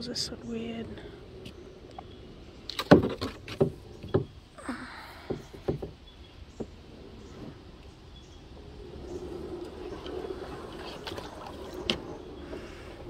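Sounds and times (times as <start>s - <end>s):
hollow knocks on kayak: 2.7s - 4.4s, 5.2s - 6.0s.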